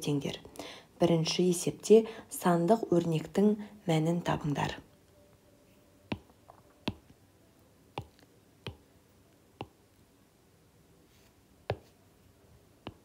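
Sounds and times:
stylus tapping on glass screen: 6.1s - 7.2s, 8.0s - 8.8s, 11.7s - 11.9s.

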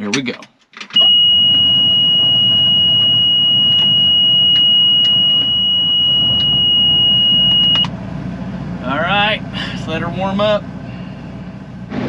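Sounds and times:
high-pitched warning buzzer: 1.0s - 7.9s
engine running: 1.0s - 12.0s.

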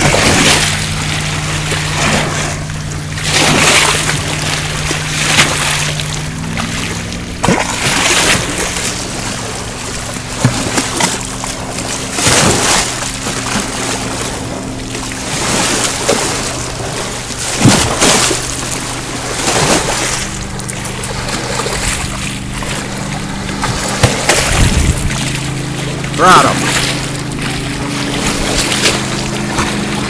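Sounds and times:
background music of sustained chords: 0.0s - 30.0s
small waves washing onto sand: 0.0s - 30.0s
dog snapping at water splashes: 10.4s - 11.4s, 23.6s - 25.4s.

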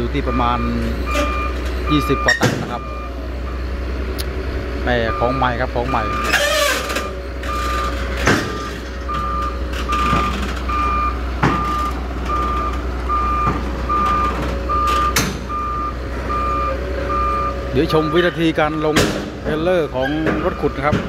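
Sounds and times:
diesel engine running: 0.0s - 21.0s
excavator travel alarm beeping: 0.1s - 21.0s.

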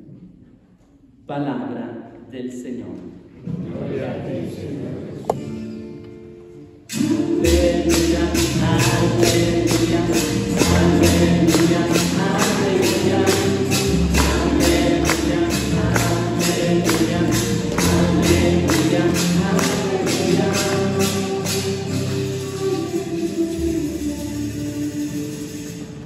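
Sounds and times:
choir singing: 6.9s - 26.0s
tambourine beat: 6.9s - 26.0s
bass line: 7.0s - 25.2s.

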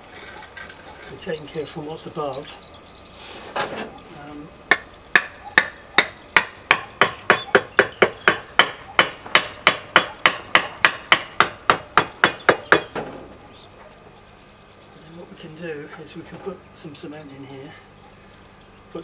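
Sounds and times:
hammer blows ringing: 4.7s - 13.0s.

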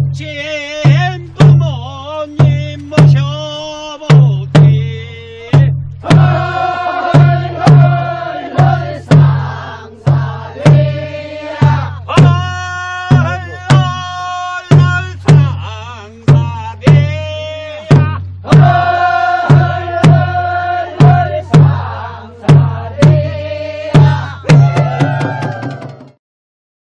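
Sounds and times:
barrel drum struck: 0.8s - 15.7s, 16.3s - 26.2s
group of voices singing: 6.0s - 26.1s.

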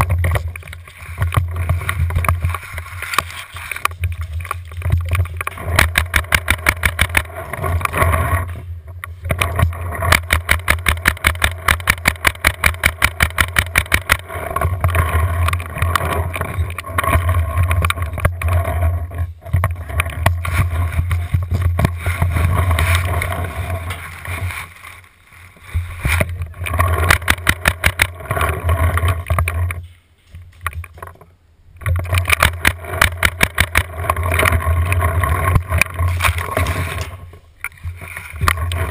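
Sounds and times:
paintball marker rapid firing: 5.6s - 7.3s, 10.0s - 14.3s, 26.9s - 28.2s.

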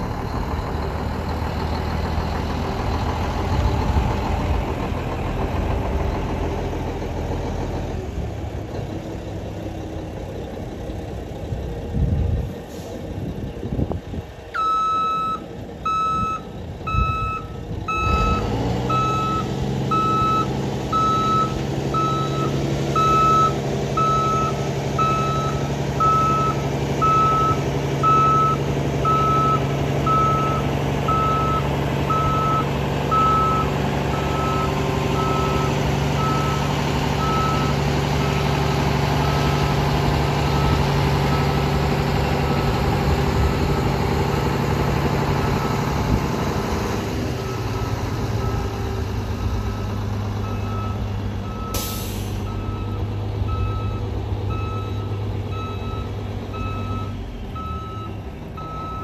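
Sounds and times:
diesel truck engine: 0.0s - 59.0s
truck reverse alarm beeping: 14.5s - 43.5s, 45.3s - 45.9s, 47.4s - 59.0s.

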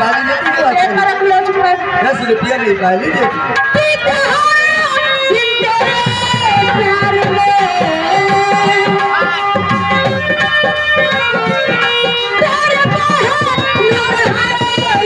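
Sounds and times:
sliding lead melody: 2.6s - 15.0s
fast hand drum playing: 5.6s - 15.0s.

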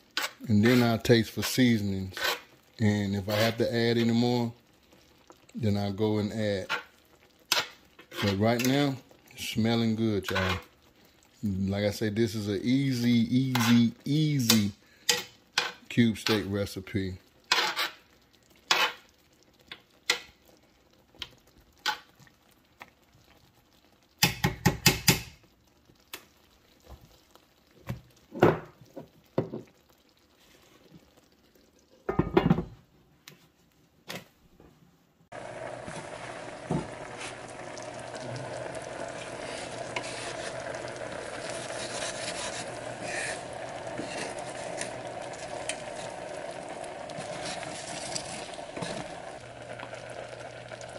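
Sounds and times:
wooden spatula stirring: 0.0s - 4.2s, 6.6s - 9.0s, 35.4s - 49.3s
gravy sizzling and bubbling: 0.0s - 33.8s, 34.8s - 50.9s
metal spoon scraping baking dish: 13.5s - 13.8s.

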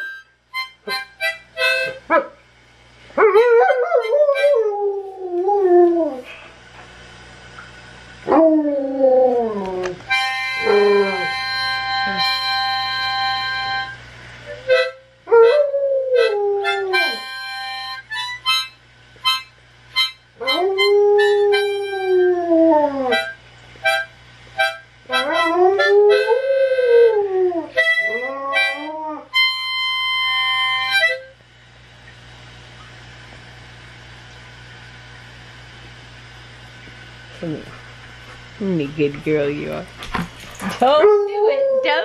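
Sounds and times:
harmonica playing chords: 0.0s - 2.1s, 10.1s - 22.2s, 23.1s - 31.4s
dog howling: 3.2s - 6.3s, 8.3s - 10.0s, 10.6s - 11.4s, 15.3s - 17.2s, 20.4s - 23.2s, 25.1s - 29.3s, 40.6s - 42.0s.

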